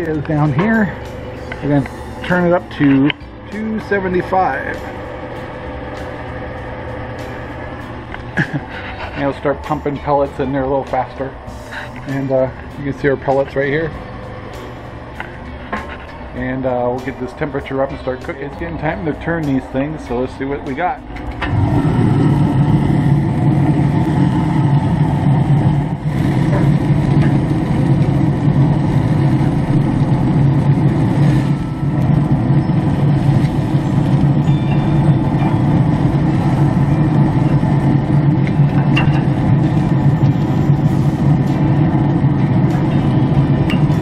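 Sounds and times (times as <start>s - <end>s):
grill fan drone: 0.0s - 44.0s.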